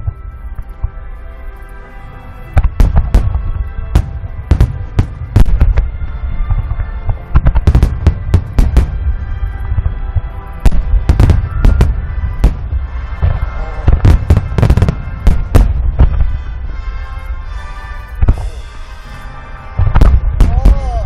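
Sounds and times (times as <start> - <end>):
continuous low rumble: 0.0 - 21.0
firework shells booming: 2.6 - 5.9, 6.5 - 9.2, 9.8 - 16.6, 19.8 - 21.0.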